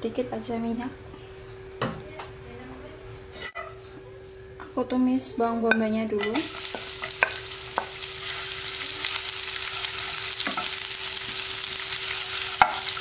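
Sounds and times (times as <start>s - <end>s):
onion sizzling in a frying pan: 6.2s - 13.0s.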